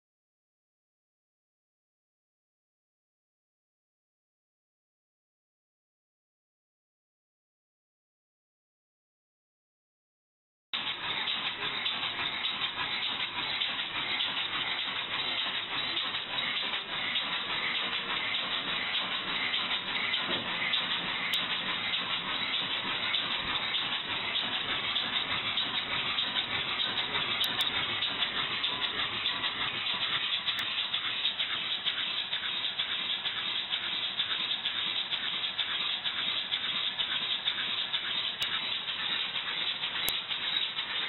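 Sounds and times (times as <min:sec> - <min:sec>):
exhaust puffs: 0:10.8 - 0:41.0.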